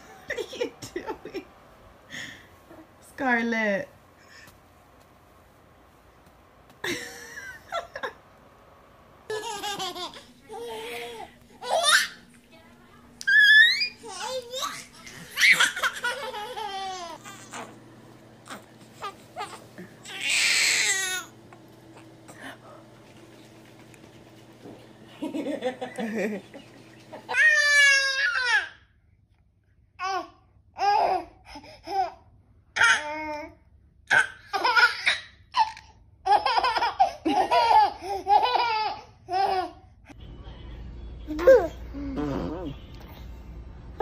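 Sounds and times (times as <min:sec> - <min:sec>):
baby laughing: 0:09.3 - 0:12.3, 0:13.2 - 0:17.8, 0:18.4 - 0:21.3, 0:34.1 - 0:39.8
baby squealing: 0:13.3 - 0:14.7
baby crying: 0:18.4 - 0:21.3, 0:27.3 - 0:28.7.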